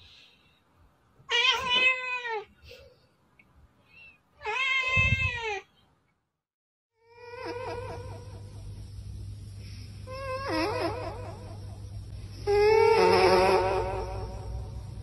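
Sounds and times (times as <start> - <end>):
cat meowing: 1.3 - 2.5, 4.4 - 5.7.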